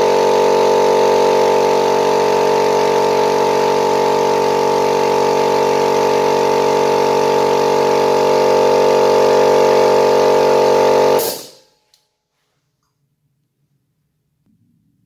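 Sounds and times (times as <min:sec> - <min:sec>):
air compressor running: 0:00.0 - 0:11.7.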